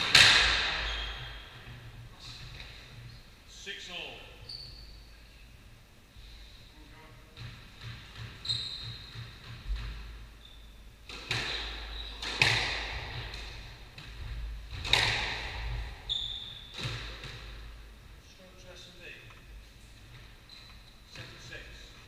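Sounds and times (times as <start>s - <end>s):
squash ball cracking off walls: 0.0s - 0.8s, 11.0s - 16.0s
shoe squeaks on wooden floor: 0.8s - 1.6s, 4.4s - 5.1s, 8.4s - 9.4s, 11.4s - 12.2s, 16.0s - 16.8s, 20.4s - 21.0s.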